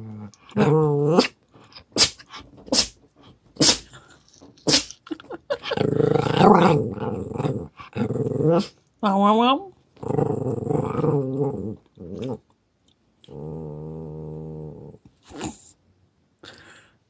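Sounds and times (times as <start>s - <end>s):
dog grumbling: 3.6s - 8.8s, 10.0s - 12.4s.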